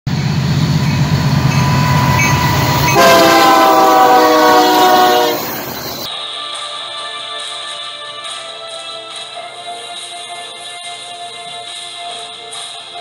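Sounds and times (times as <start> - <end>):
locomotive engine rumble: 0.1 - 6.1
locomotive air horn: 0.2 - 6.1.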